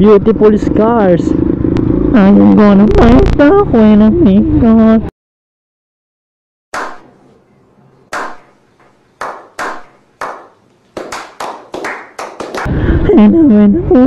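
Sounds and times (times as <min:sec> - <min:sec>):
men slow clapping: 0:08.1 - 0:12.7.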